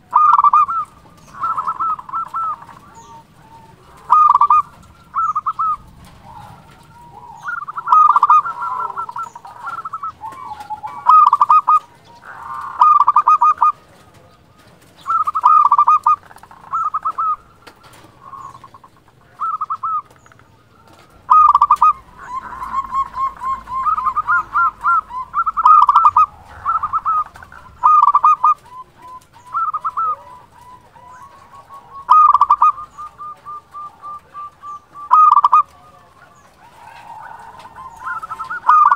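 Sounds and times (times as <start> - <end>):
dove trilling coos: 0.0 - 38.9.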